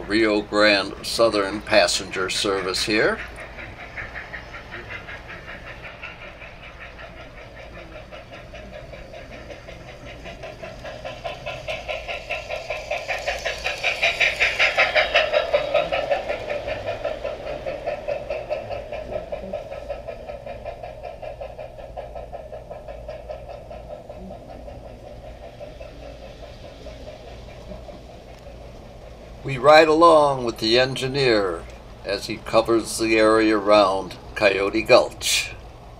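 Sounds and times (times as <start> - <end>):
model train clattering along track: 0.0 - 35.9.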